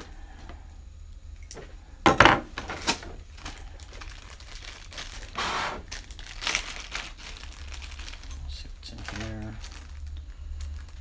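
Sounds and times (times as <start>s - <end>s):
plastic bag crinkling: 2.6s - 11.0s
small parts clattering: 5.9s - 11.0s.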